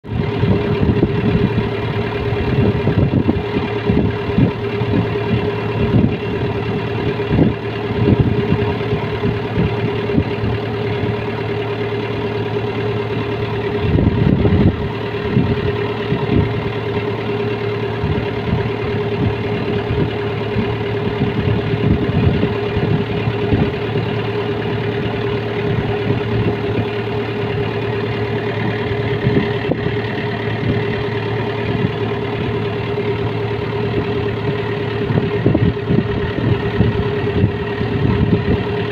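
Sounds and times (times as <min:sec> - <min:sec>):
combine harvester machinery drone: 0:00.0 - 0:38.9
wind on microphone: 0:00.1 - 0:11.2, 0:13.8 - 0:16.8, 0:18.0 - 0:24.0, 0:29.0 - 0:32.6, 0:33.8 - 0:38.9.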